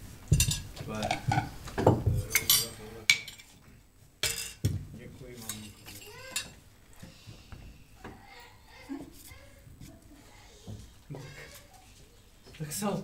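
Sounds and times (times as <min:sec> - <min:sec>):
spoons clinking on dishes: 0:02.2 - 0:03.5, 0:04.2 - 0:04.6, 0:05.4 - 0:06.6.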